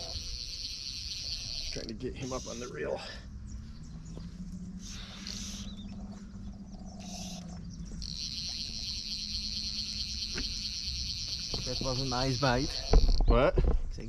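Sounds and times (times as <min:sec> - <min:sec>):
fishing reel clicking and buzzing: 0:00.0 - 0:02.6, 0:08.0 - 0:13.3.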